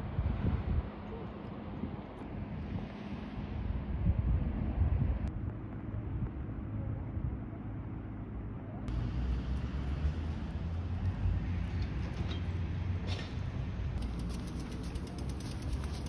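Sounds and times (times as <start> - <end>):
wind rumbling on microphone: 0.0 - 7.9
vehicle traffic: 5.2 - 16.0.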